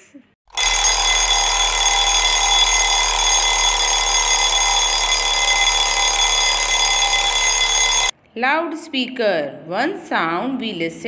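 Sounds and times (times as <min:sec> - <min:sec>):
alarm clock bell ringing: 0:00.5 - 0:08.1.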